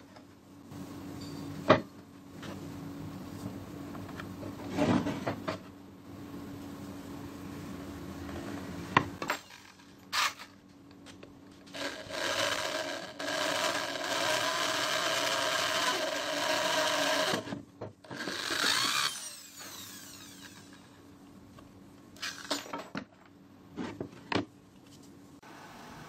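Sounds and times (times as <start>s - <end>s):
electric drill boring wood: 11.7s - 21.0s.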